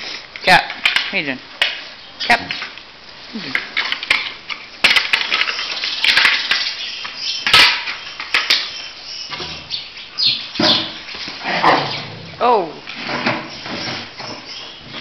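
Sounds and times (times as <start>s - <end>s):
dogs scuffling on concrete: 3.4s - 12.2s, 12.8s - 15.0s.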